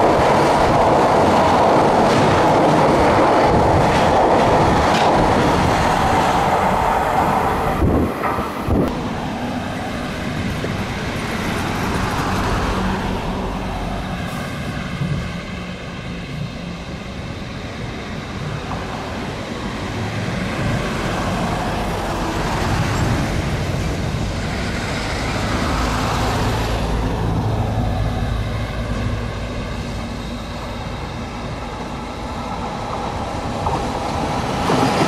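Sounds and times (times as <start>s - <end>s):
freight train rumbling past: 0.0s - 35.0s.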